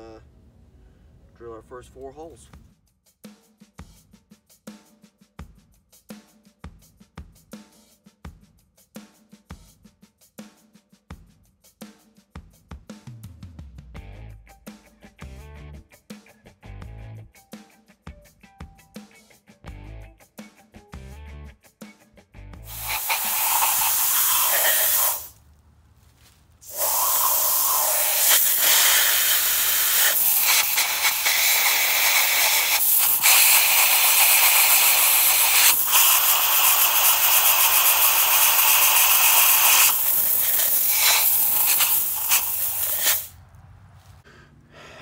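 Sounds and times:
compressed air hissing from nozzle: 22.6s - 25.4s, 26.1s - 43.3s.

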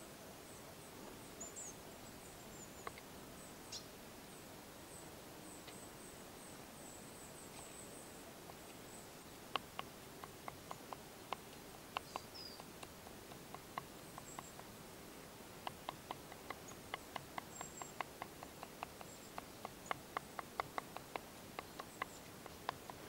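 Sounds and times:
bird chirps: 8.8s - 14.7s, 15.6s - 23.0s.

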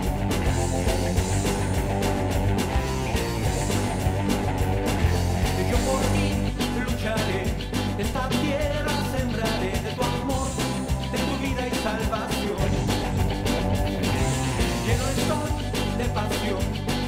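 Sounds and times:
rock song drums and bass: 0.0s - 17.0s
person singing: 5.4s - 13.6s, 14.2s - 17.0s.

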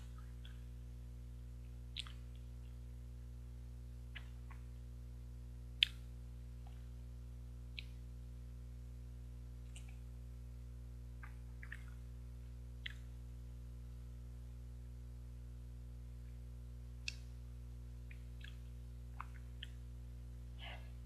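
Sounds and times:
steady low hum: 0.0s - 21.0s
wet mouth eating sounds: 1.9s - 2.8s, 5.8s - 6.8s, 11.2s - 12.0s, 12.8s - 13.1s, 18.1s - 19.8s.

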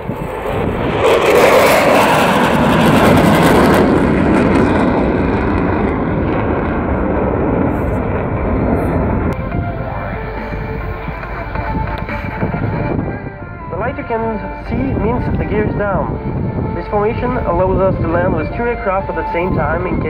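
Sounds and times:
jets passing with loud roar: 0.0s - 20.0s.

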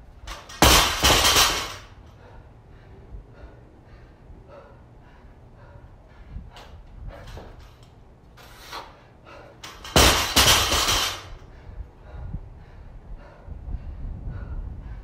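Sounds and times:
barbell crashing on rubber mats: 0.3s - 1.9s, 9.8s - 11.4s
weight plates rattling: 0.3s - 2.0s, 9.6s - 11.4s.

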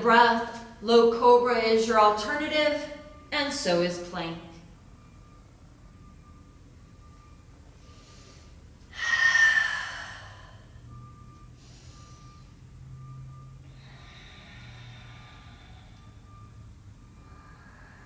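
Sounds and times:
faint beep: 4.4s - 8.6s, 9.8s - 18.0s
person exhaling forcefully: 8.9s - 10.7s.

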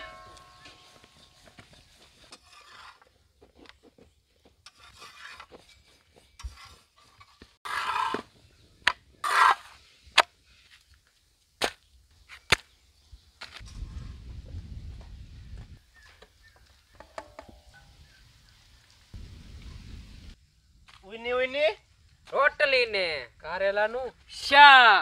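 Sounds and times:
rolling pin scraping: 0.7s - 8.3s.

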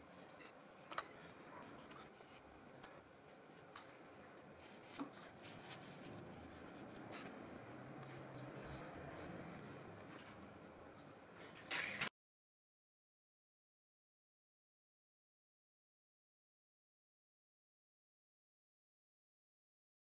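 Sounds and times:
hands handling paper: 0.1s - 7.4s, 11.0s - 12.1s
paper rustle: 4.6s - 7.3s, 11.0s - 12.1s.

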